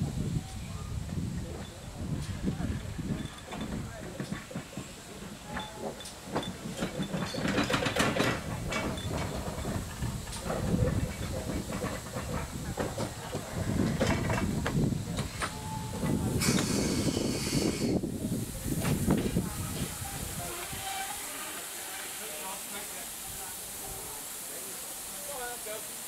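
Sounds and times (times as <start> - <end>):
steam hissing: 0.0 - 26.0
steam locomotive exhaust beats: 0.0 - 26.0
wheels clicking over rail joints: 1.0 - 17.3.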